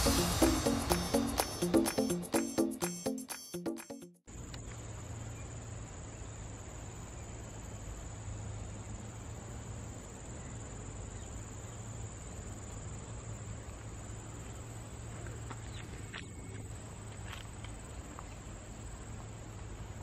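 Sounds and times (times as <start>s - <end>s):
insects chirping chorus: 4.3s - 20.0s.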